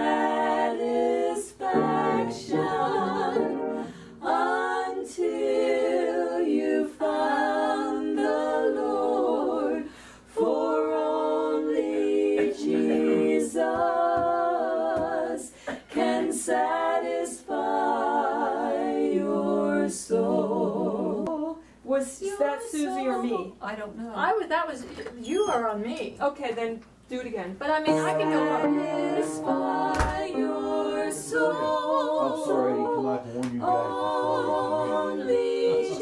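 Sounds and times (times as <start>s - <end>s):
women singing a cappella: 0.0s - 24.3s, 27.6s - 36.0s.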